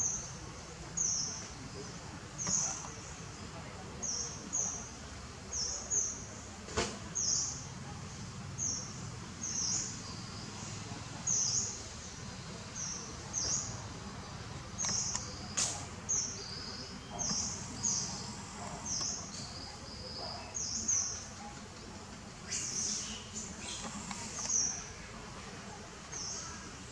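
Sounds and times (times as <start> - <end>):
low outdoor background: 0.0 - 26.9
sharp clicks: 14.8 - 15.9, 23.6 - 24.7.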